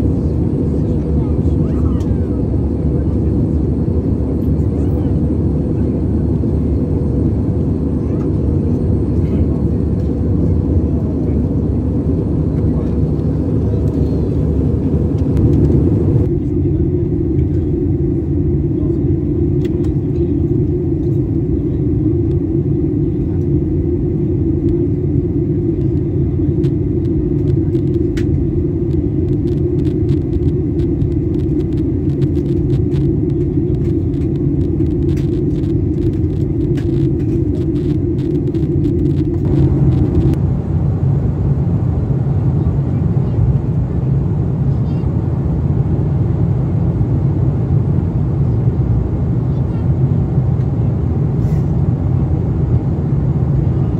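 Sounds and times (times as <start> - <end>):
airplane cabin engine noise: 0.0 - 53.9
deep cabin rumble: 0.0 - 53.9
scattered clicks: 26.6 - 40.4.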